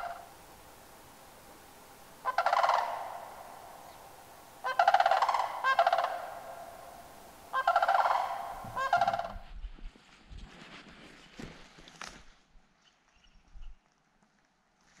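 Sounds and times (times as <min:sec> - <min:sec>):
large birds honking calls: 0:02.2 - 0:09.4.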